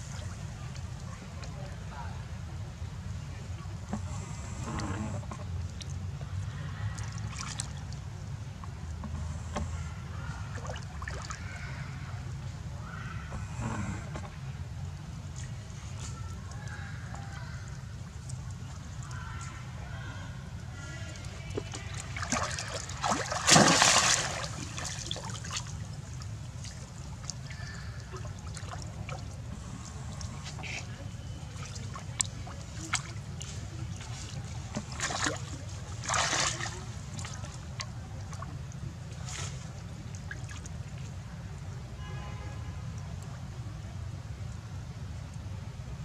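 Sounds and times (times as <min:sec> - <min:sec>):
water splashing and sloshing: 0:00.0 - 0:45.9
water dripping: 0:31.5 - 0:38.8.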